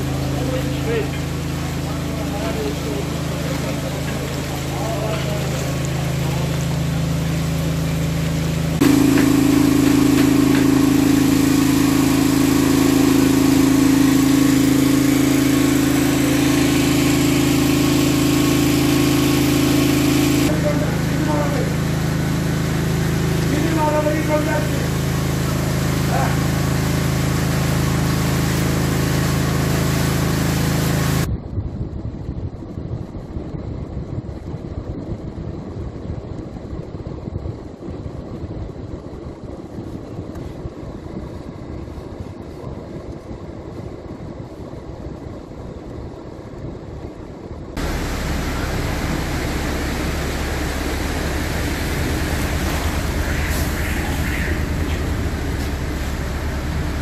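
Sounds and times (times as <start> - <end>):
vehicles driving through water: 0.0 - 31.3, 47.8 - 57.0
low engine hum: 0.0 - 57.0.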